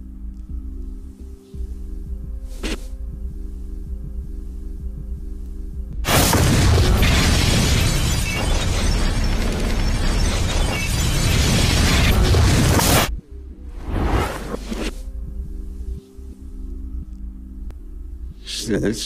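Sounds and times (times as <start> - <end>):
loud explosion: 6.0 - 13.1
flying debris: 6.1 - 13.1.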